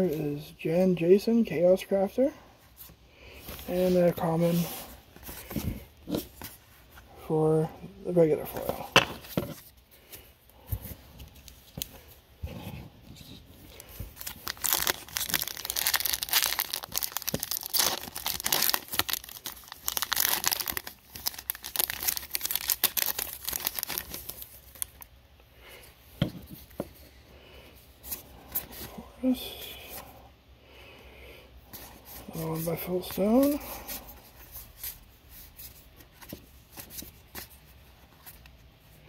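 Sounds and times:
wrapper tearing and crinkling: 13.7s - 25.0s.

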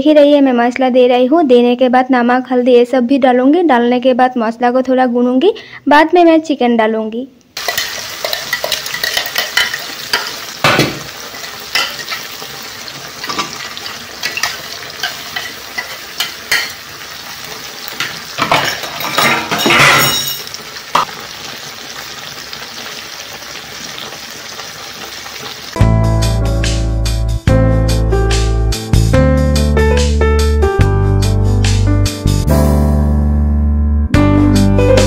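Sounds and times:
metal utensils scraping a pan: 7.6s - 12.6s, 13.2s - 16.9s, 17.9s - 21.1s
paste sizzling in hot oil: 7.6s - 25.8s.

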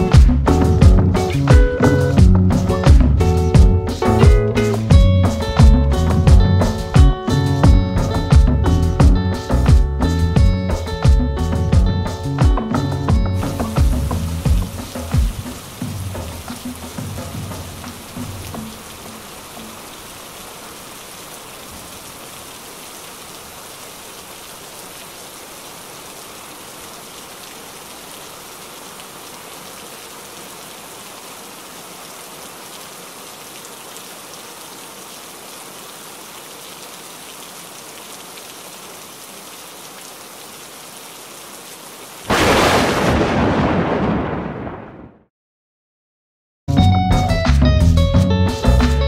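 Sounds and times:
steady rain: 0.0s - 45.1s
thunder clap: 42.3s - 45.3s.

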